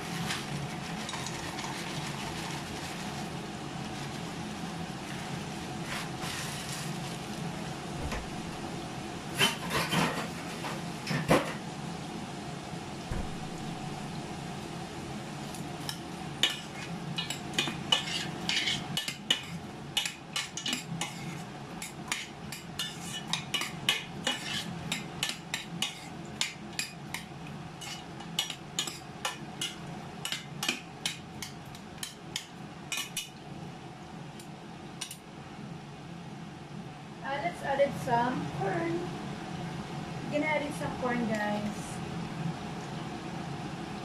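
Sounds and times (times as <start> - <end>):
metal spoon scraping pot: 16.4 - 31.2.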